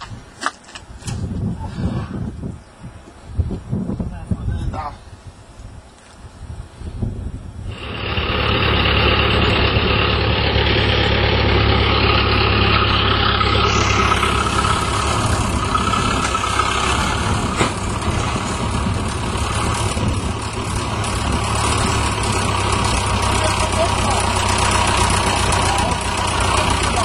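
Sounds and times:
tractor engine running: 7.7 - 27.0.

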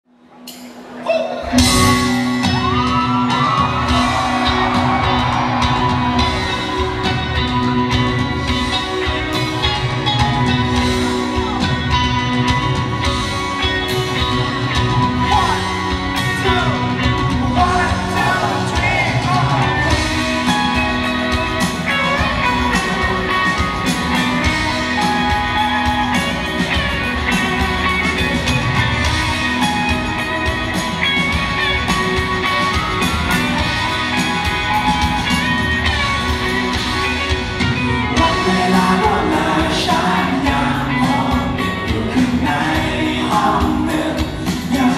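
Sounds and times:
live rock band playing: 0.2 - 44.9
person singing: 8.7 - 30.9, 38.0 - 44.9.

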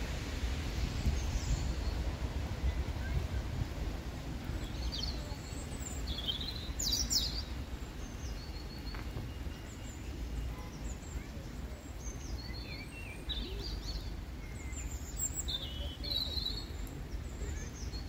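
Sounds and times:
low outdoor rumble: 0.0 - 18.0
birds chirping: 4.5 - 18.0.

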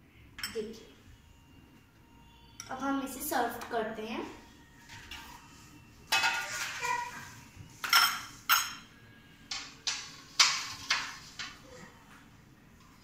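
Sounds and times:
dishes and cutlery clinking: 0.4 - 0.8, 4.8 - 11.7.

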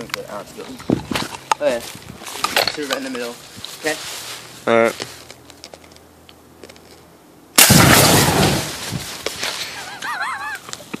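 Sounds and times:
aerosol can bursting in fire: 7.6 - 9.3.

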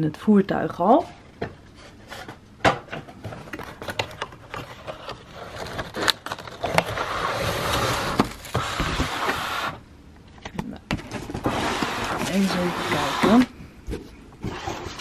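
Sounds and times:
cardboard flaps scraping: 4.6 - 9.8, 11.0 - 13.5
foam packing sheet rustling: 4.6 - 9.8, 11.0 - 13.5.

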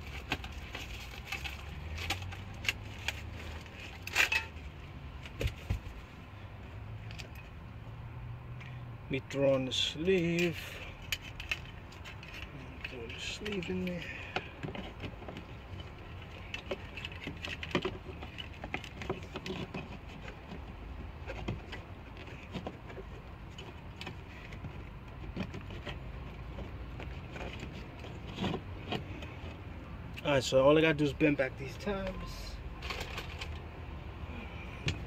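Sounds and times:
light knocks and scrapes: 10.2 - 29.7.

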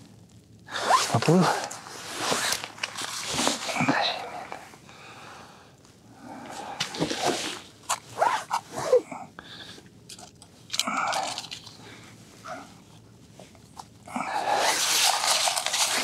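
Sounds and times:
snow squeaks: 0.8 - 2.6.

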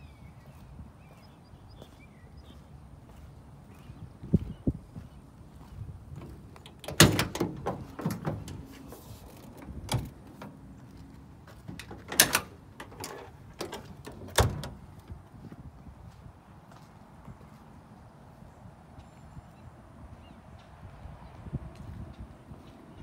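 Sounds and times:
cargo door clunking and knocking: 6.7 - 8.8, 9.4 - 10.7, 11.6 - 15.2.

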